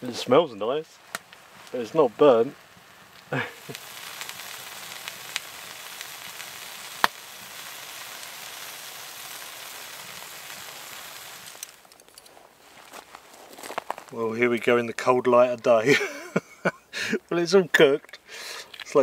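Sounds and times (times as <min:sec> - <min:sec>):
pancake batter sizzling in a pan: 0:00.0 - 0:14.2
sharp pop: 0:07.0 - 0:07.2.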